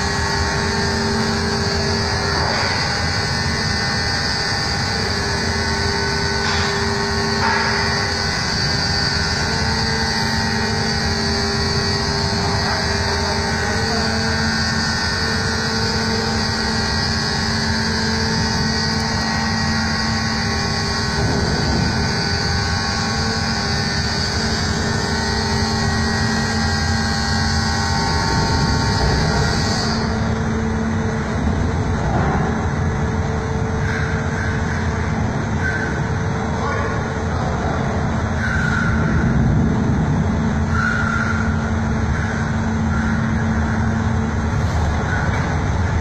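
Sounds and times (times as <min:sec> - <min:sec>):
diesel truck engine running: 0:00.0 - 0:46.0.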